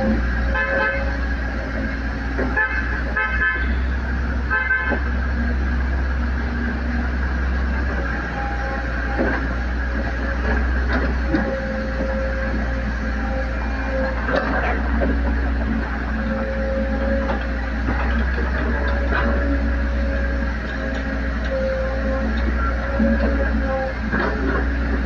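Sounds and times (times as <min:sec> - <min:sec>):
diesel engine rumbling: 0:00.0 - 0:25.0
horn toots: 0:02.6 - 0:03.9, 0:04.5 - 0:05.0.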